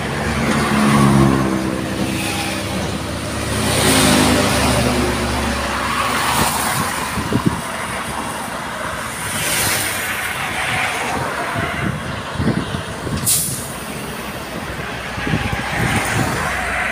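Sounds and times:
diesel trucks passing: 0.0s - 16.9s
short sharp hiss: 13.2s - 13.7s.

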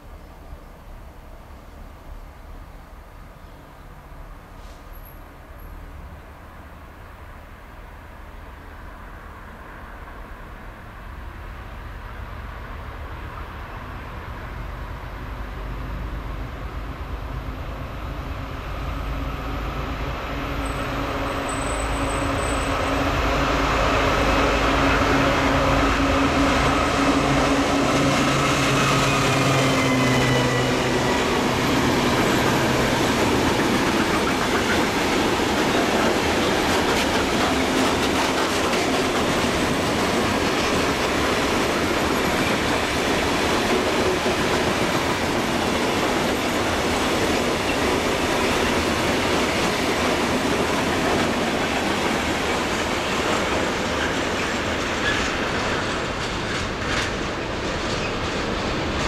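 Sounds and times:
train wheels rumbling on rail: 0.0s - 59.0s
locomotive drone and whine: 10.2s - 49.2s
wheels clicking over rail joints: 31.8s - 59.0s.

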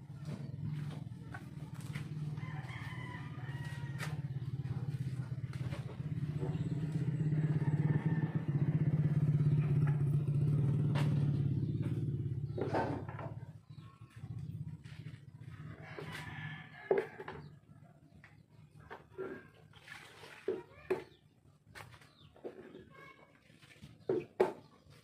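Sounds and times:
pulsing low motor hum: 0.0s - 17.4s
rooster crowing: 2.4s - 4.3s, 7.3s - 8.9s, 15.8s - 17.4s.

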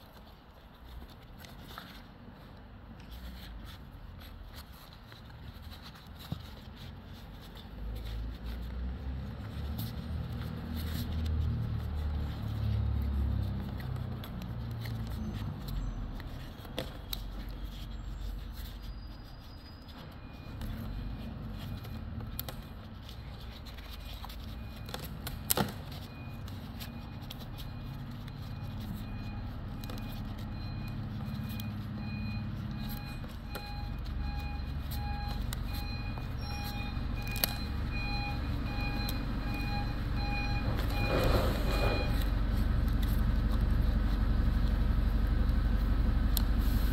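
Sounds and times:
vehicle engine rumbling: 0.0s - 46.9s
reversing beeper: 26.1s - 42.4s.

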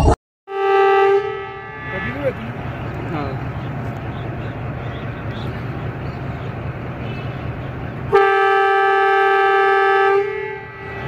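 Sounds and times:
locomotive engine rumbling: 0.0s - 11.0s
train horn: 0.5s - 4.2s, 8.1s - 11.0s.

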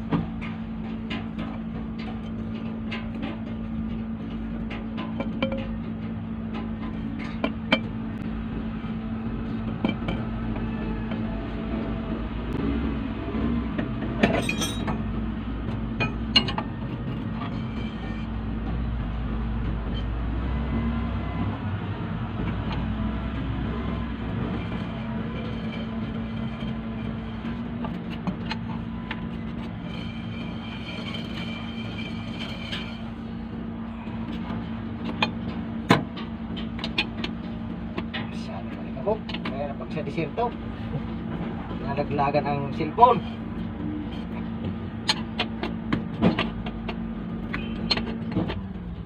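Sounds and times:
low mechanical hum: 0.0s - 49.0s
hand tools clinking on metal: 14.2s - 15.0s.

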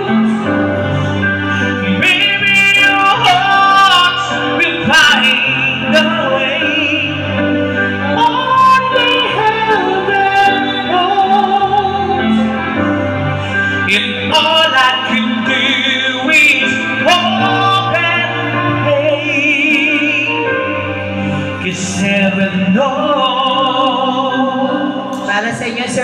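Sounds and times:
slow ballad accompaniment: 0.0s - 26.0s
woman singing: 1.8s - 7.3s, 8.0s - 13.0s, 13.8s - 20.5s.

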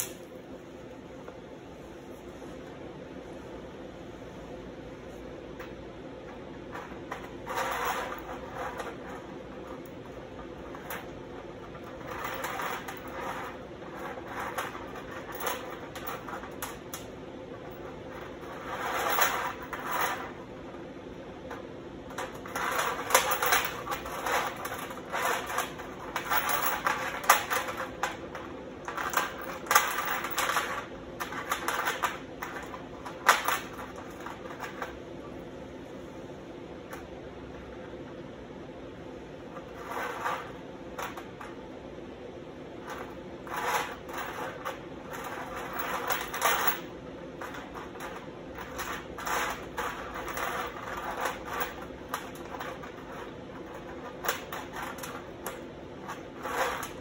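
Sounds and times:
steady low hum: 0.0s - 57.0s
chain links clinking on metal sheet: 6.6s - 20.5s, 22.1s - 35.0s, 42.8s - 57.0s.

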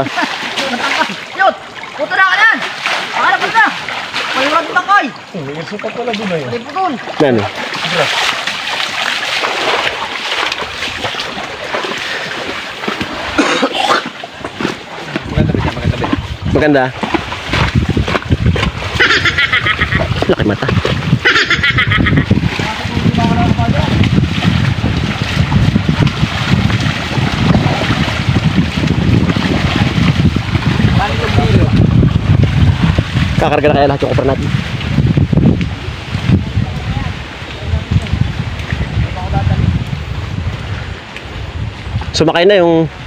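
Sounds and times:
creek flowing: 0.0s - 43.0s
water splashing and sloshing: 0.0s - 43.0s
wind buffeting microphone: 14.3s - 43.0s.

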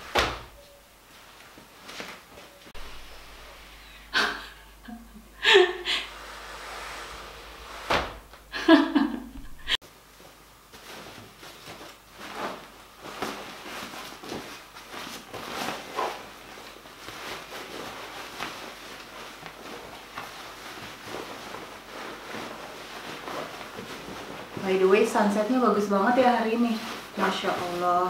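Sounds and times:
fabric rustling: 0.0s - 28.0s.

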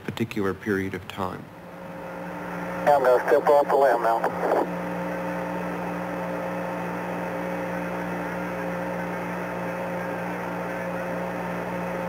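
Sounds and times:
radio static hiss and hum: 2.8s - 4.8s.

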